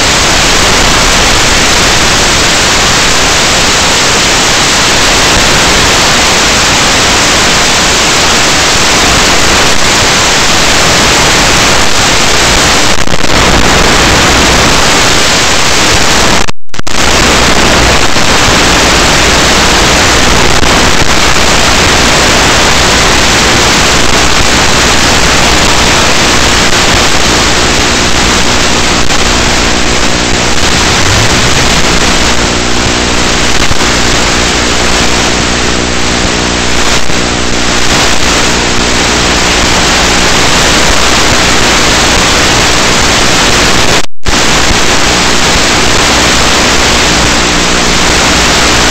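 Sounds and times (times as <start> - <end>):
loud static hiss: 0.0 - 48.9
faint low tones: 30.4 - 33.0.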